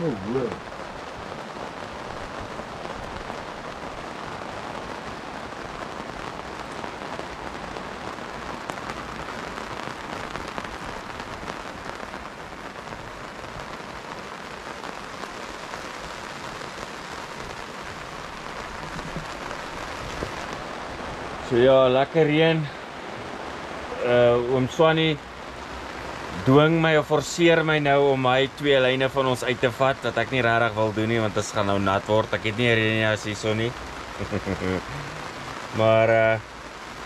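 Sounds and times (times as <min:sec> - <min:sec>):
steady rain: 0:00.0 - 0:37.0.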